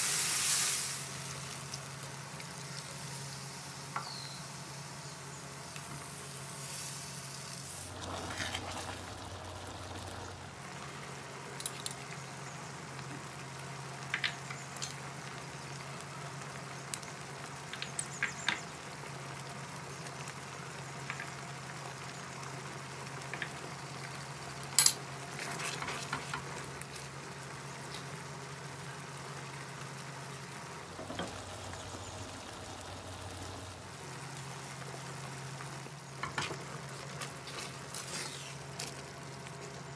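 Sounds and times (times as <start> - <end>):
sauce simmering in a pan: 0.0 - 39.9
steady low hum: 0.9 - 14.1
spatula scraping a pan: 7.9 - 9.1.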